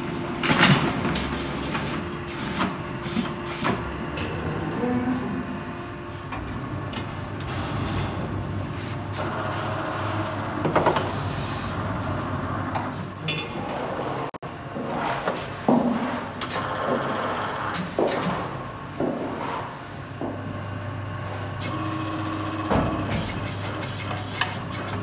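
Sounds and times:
steady low hum: 0.0s - 13.3s
metal knocks and scraping: 6.4s - 9.2s.

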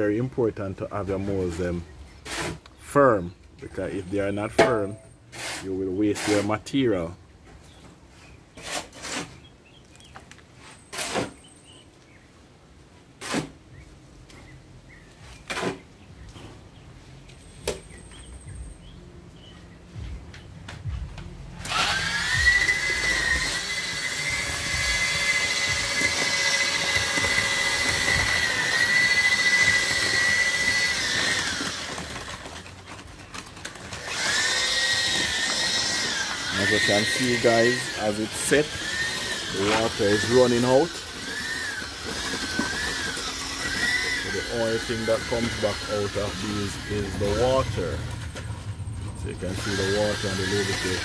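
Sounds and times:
electric drill mixer whining: 21.6s - 48.6s, 49.4s - 51.0s.

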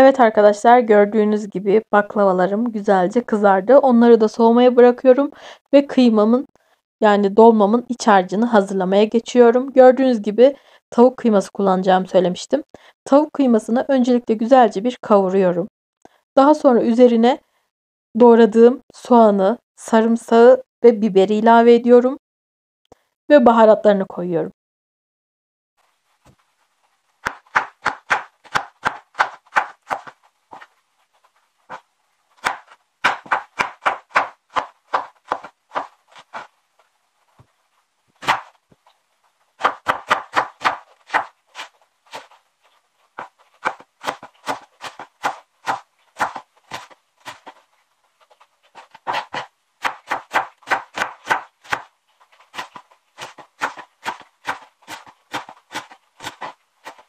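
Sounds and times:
knife chopping on wooden board: 27.2s - 30.7s, 32.4s - 36.5s, 38.2s - 38.5s, 39.6s - 42.3s, 43.2s - 47.6s, 48.8s - 51.9s, 52.5s - 57.0s.

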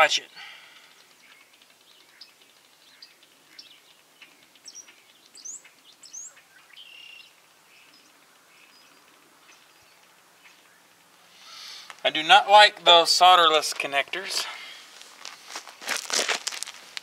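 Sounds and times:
bird chirping: 0.4s - 11.9s.

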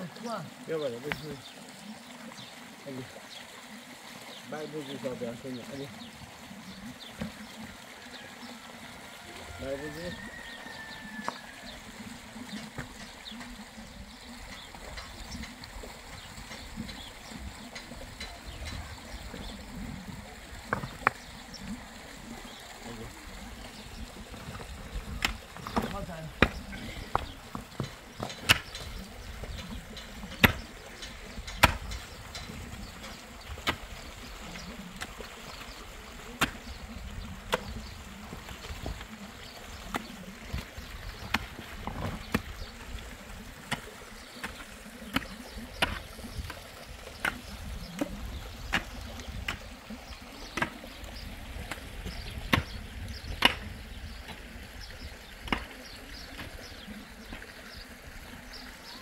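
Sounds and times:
rocks knocking: 1.1s - 1.4s, 7.1s - 7.5s, 12.5s - 13.6s, 20.6s - 21.4s, 23.7s - 34.1s, 34.8s - 49.8s, 50.4s - 54.4s, 55.4s - 57.5s
digging tool striking stony soil: 24.4s - 34.0s, 36.4s - 36.8s, 37.4s - 39.1s, 39.9s - 42.8s, 43.6s - 49.7s, 50.5s - 50.9s, 51.6s - 53.9s, 55.4s - 55.8s.

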